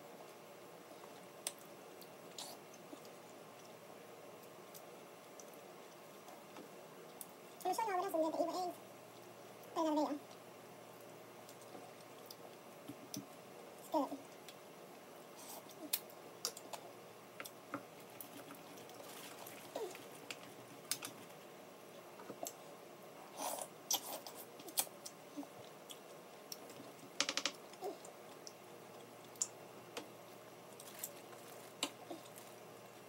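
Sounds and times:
plastic bag crinkling: 18.9s - 20.1s, 30.8s - 32.6s.

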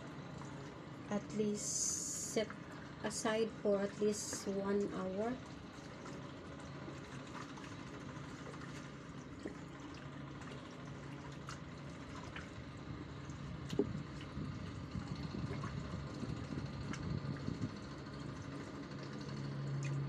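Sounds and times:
low hum: 0.0s - 20.0s
wet squelches of marinating meat: 5.6s - 20.0s.

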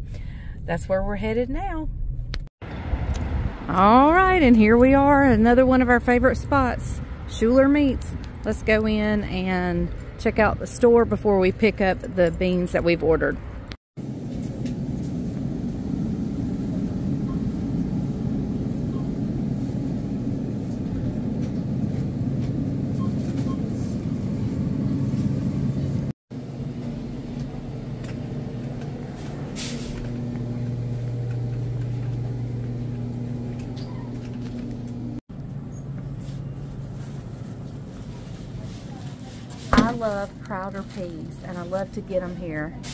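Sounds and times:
refrigerator hum: 14.0s - 42.8s.

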